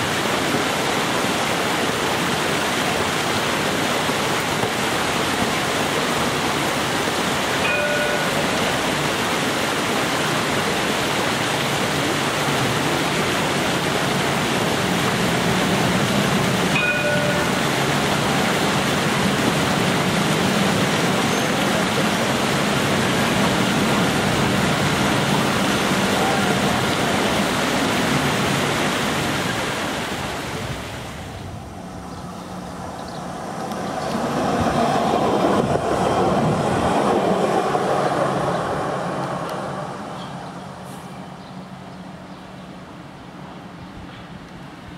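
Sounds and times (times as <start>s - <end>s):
tram rushing hiss: 0.0s - 42.2s
approaching tram running: 5.7s - 28.8s, 31.2s - 44.9s
short ringing tones: 7.6s - 8.5s, 16.8s - 17.6s.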